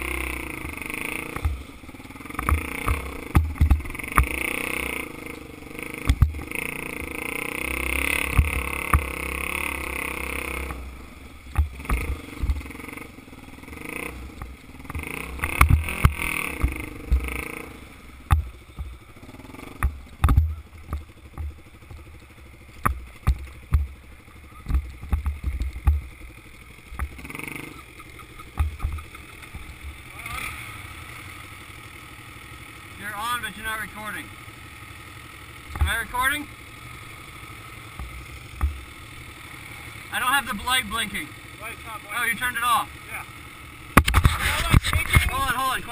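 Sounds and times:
dirt bike engine running: 0.0 - 45.9
bike knocks and thumps: 2.4 - 4.4, 11.5 - 12.7, 14.4 - 17.4, 18.2 - 19.0, 19.7 - 22.1, 22.8 - 24.0, 24.6 - 26.2, 28.4 - 29.7.

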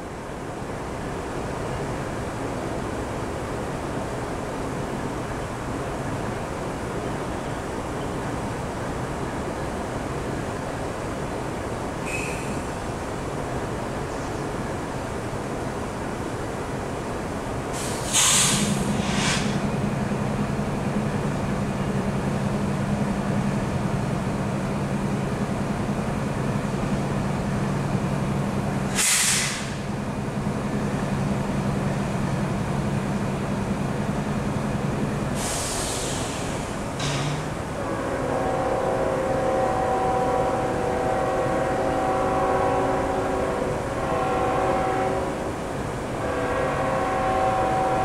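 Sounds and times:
freight train rumbling: 0.0 - 48.0
short hissing bursts: 17.8 - 19.6, 29.0 - 29.8, 35.4 - 36.7.

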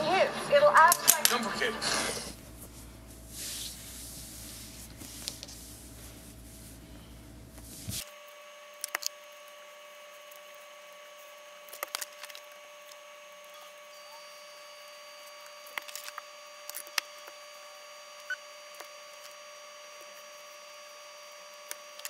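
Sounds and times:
faint steady whine: 0.0 - 22.0
steady low hum: 0.0 - 22.0
fabric and paper handling: 1.1 - 8.1.

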